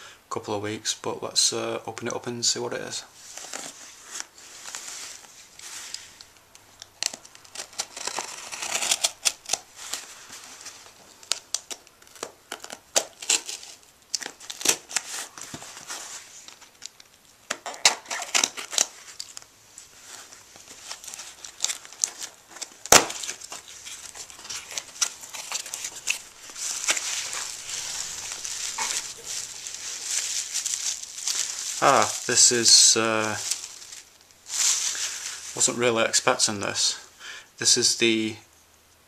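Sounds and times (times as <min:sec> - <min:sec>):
tape tearing: 0:03.2 - 0:35.6
knife slitting packing tape: 0:07.0 - 0:10.0, 0:11.2 - 0:15.4, 0:17.5 - 0:19.4
cardboard flaps rustling: 0:19.9 - 0:35.5.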